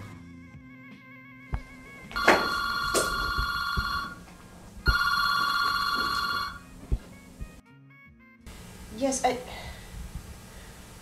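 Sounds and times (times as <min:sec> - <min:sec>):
telephone ringing: 0:02.2 - 0:06.7.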